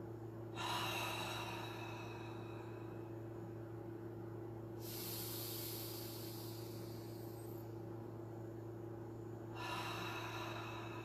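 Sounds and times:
low hum: 0.0 - 11.0
woman breathing deeply: 0.4 - 3.5, 4.8 - 7.9, 9.3 - 11.0.

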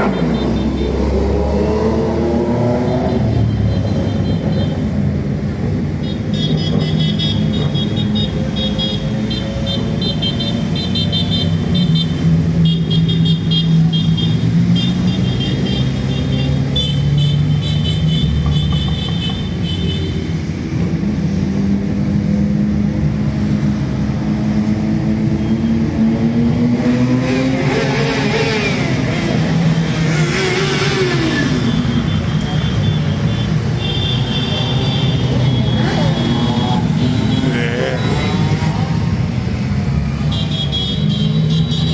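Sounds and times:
horns beeping: 0.0 - 1.3, 2.6 - 5.0, 6.0 - 20.3, 30.6 - 39.1, 40.1 - 41.9
motorcycle engines passing: 0.0 - 41.9.

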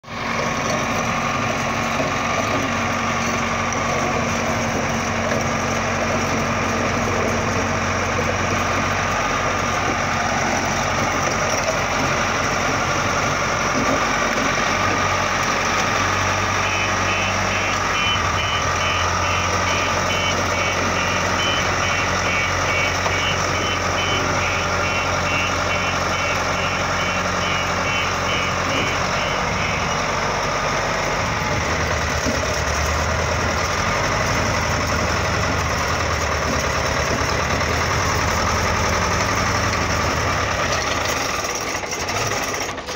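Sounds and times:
diesel engine idling: 0.0 - 42.9
high beep: 16.6 - 30.0.

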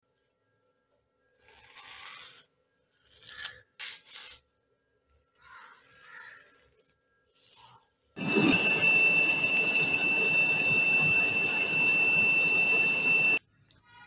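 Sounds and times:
gas burner rushing: 8.2 - 13.4
high whistling tone: 8.2 - 13.4.

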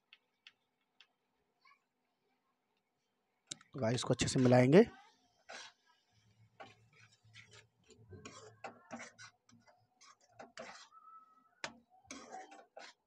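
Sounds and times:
metal spatula scraping a pan: 5.4 - 11.0, 11.6 - 13.0.

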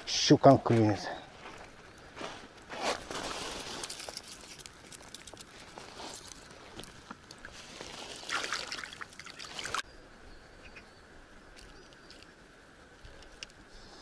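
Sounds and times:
river water trickling over pebbles: 3.0 - 9.9, 11.3 - 13.7.

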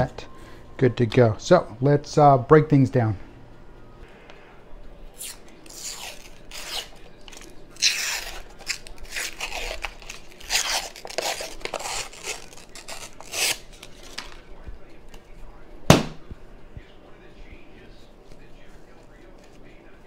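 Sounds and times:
paper label ripping and rustling: 5.2 - 14.5.

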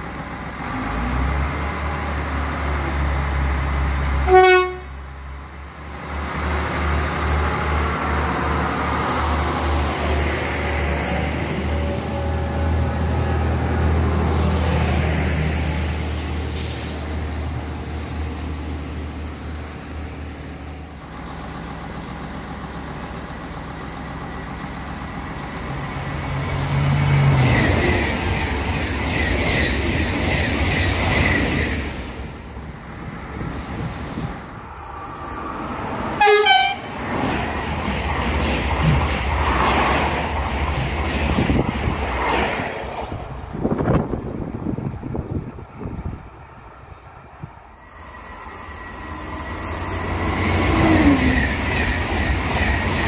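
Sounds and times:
electric train humming past: 0.0 - 53.0
train approaching rail noise: 0.0 - 53.0
train horn toot: 4.2 - 5.0, 36.2 - 37.0.

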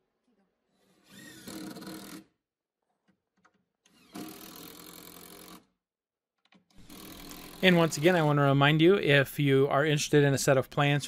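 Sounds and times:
impact driver driving screws into wood: 3.9 - 5.7.

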